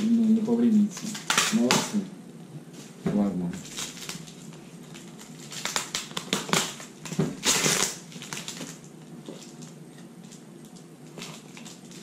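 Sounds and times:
packaging ripping: 0.0s - 2.0s, 3.6s - 9.8s, 11.0s - 12.0s
packaging crinkling and clicking: 0.6s - 2.0s, 3.6s - 12.0s.

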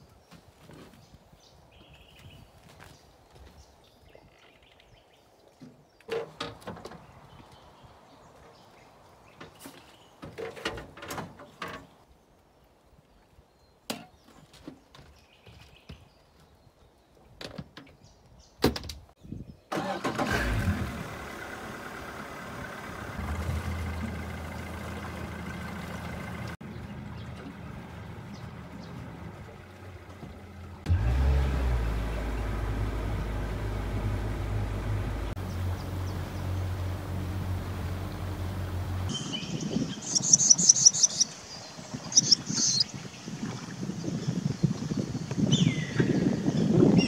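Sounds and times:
outboard motor running: 20.8s - 39.2s.

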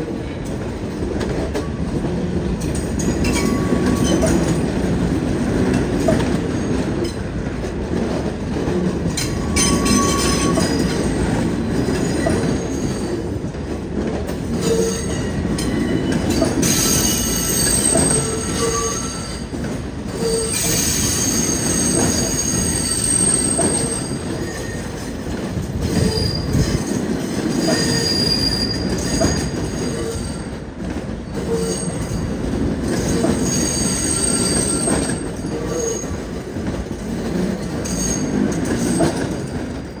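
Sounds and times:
train rumbling: 0.0s - 40.0s
train wheels squealing: 3.0s - 4.5s, 9.2s - 11.1s, 11.9s - 13.2s, 14.6s - 25.1s, 25.8s - 30.6s, 31.3s - 36.2s, 37.6s - 40.0s.

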